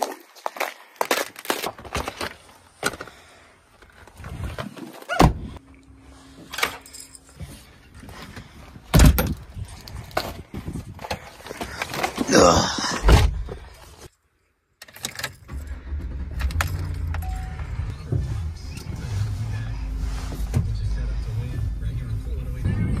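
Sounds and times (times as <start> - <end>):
keys jangling: 6.5 - 7.7
door thuds: 8.9 - 9.4.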